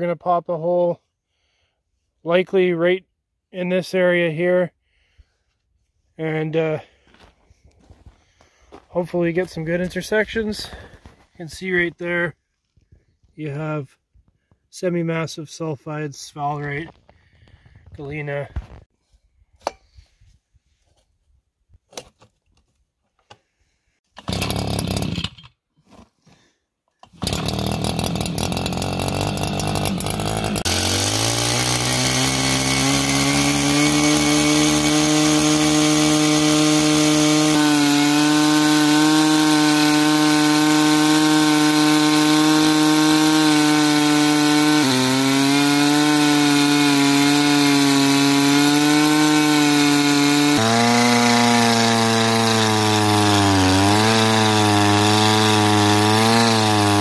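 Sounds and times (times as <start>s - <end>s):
core drill engine running: 24.2s - 25.4s, 27.0s - 57.0s.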